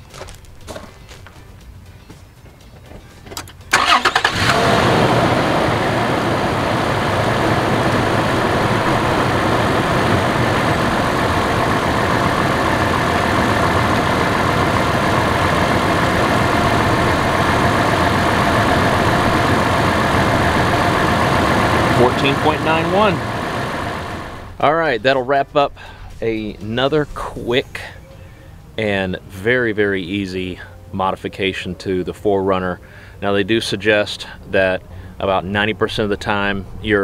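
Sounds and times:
car engine starting and idling: 0:03.2 - 0:29.7.

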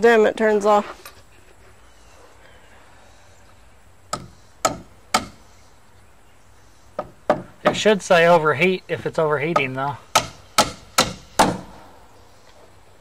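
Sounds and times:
hammer driving nail into wood: 0:04.2 - 0:05.4, 0:09.6 - 0:11.8.

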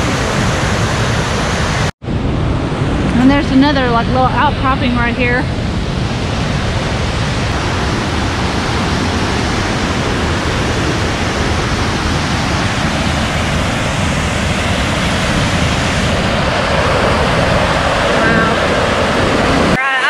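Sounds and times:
waterfall rushing: 0:03.1 - 0:20.0.

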